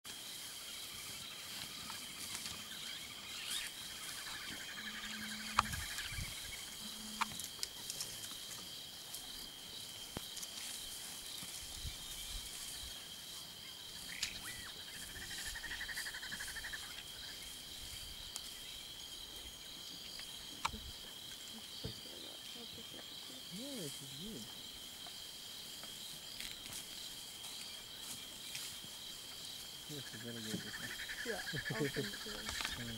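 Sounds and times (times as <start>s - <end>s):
high-pitched cricket drone: 0.6s - 7.7s, 26.0s - 32.9s.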